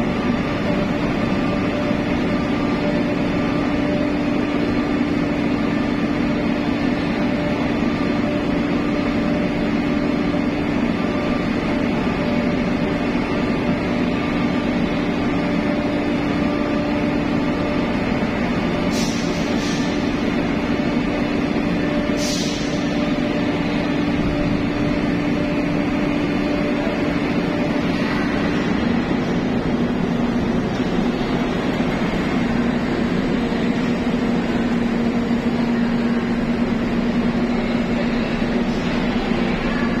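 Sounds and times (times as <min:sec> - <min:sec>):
droning hum of machinery: 0:00.0 - 0:40.0
truck engines: 0:00.0 - 0:40.0
short high hisses: 0:18.9 - 0:19.9.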